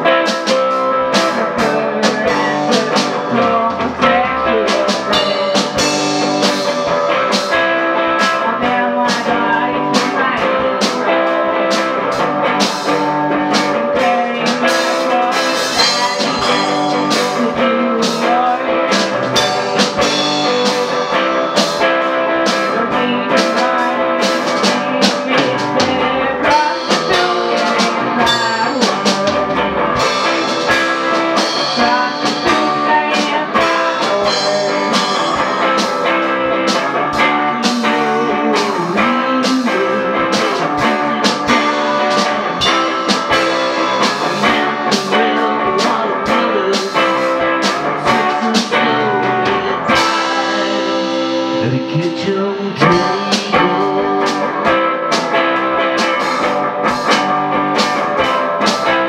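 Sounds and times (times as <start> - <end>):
drum kit beat: 0.0 - 59.0
electric guitar through amplifier: 0.0 - 59.0.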